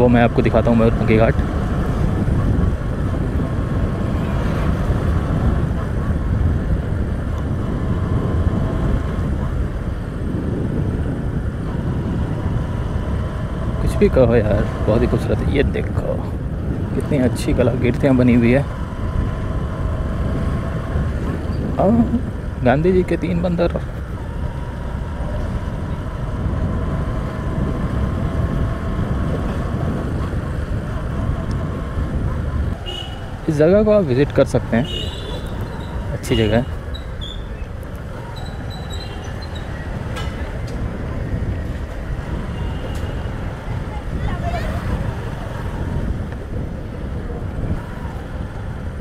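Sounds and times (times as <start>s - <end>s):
motorcycle engine drone: 0.0s - 49.0s
wind rumbling on microphone: 0.0s - 49.0s.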